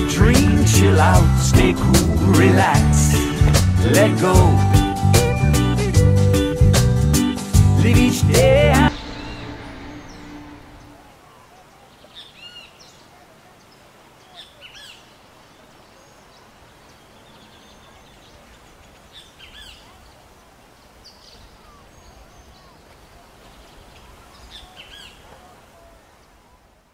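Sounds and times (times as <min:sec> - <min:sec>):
birds chirping: 0:07.9 - 0:26.6
steady background hiss: 0:08.9 - 0:26.9.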